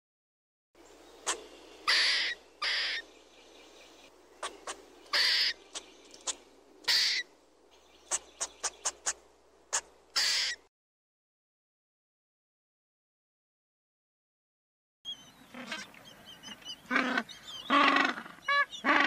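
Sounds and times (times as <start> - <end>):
faint background hiss: 0.8 - 10.6
squirrel raspy calls and ticks: 1.2 - 3.1, 4.4 - 10.6, 15.5 - 19.0.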